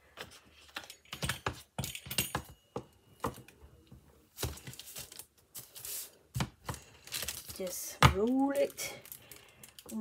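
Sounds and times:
paper rustling: 4.3s - 7.7s.

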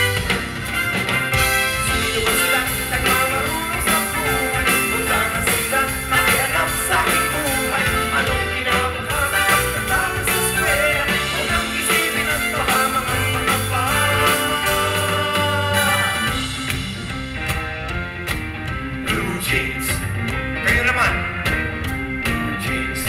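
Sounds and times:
backing band playing pop: 0.0s - 23.0s
men singing into microphones: 1.9s - 16.4s.

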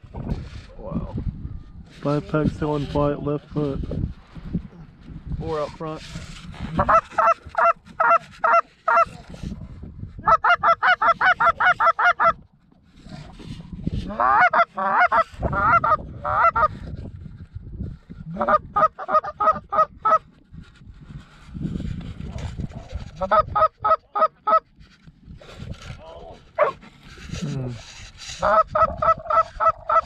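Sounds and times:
goose call clucks: 6.6s - 9.4s, 10.2s - 12.4s, 14.0s - 16.8s, 18.3s - 20.3s, 22.9s - 24.7s, 26.6s - 30.0s
goose call honks: 6.7s - 9.2s, 14.1s - 16.7s, 18.3s - 20.2s, 28.4s - 30.0s.

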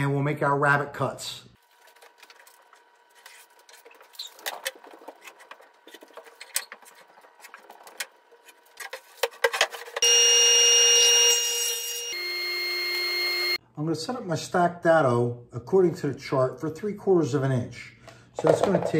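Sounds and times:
radial arm saw whining: 10.0s - 13.6s.

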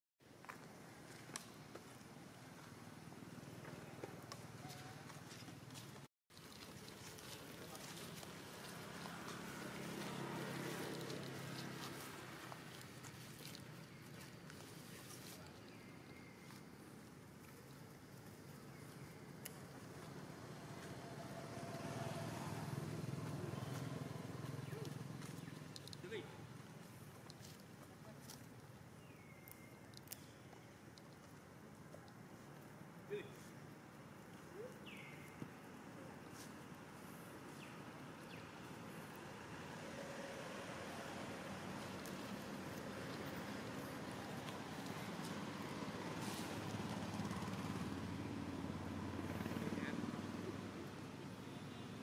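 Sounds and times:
faint outdoor hiss: 0.2s - 52.0s
passing vehicle engine rumble: 7.1s - 13.6s, 19.2s - 27.1s, 36.0s - 52.0s.

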